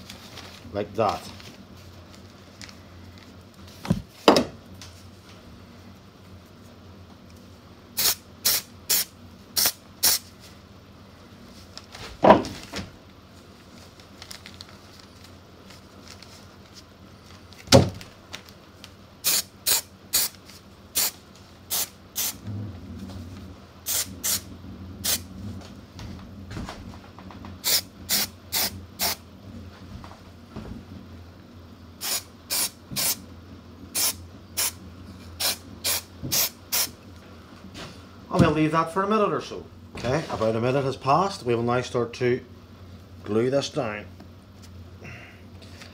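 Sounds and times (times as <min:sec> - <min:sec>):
aerosol spray hissing: 0:08.0 - 0:10.2, 0:19.2 - 0:20.3, 0:21.0 - 0:22.4, 0:23.9 - 0:24.4, 0:27.6 - 0:29.2, 0:32.0 - 0:33.2, 0:34.0 - 0:34.8, 0:35.4 - 0:36.9.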